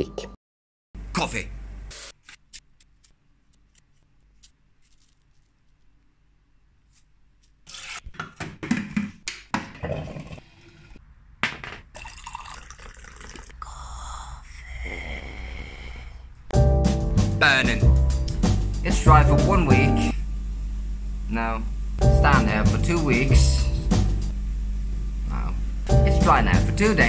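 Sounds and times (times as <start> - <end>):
coffee gurgling and dripping: 9.8 - 11.0, 11.9 - 13.9.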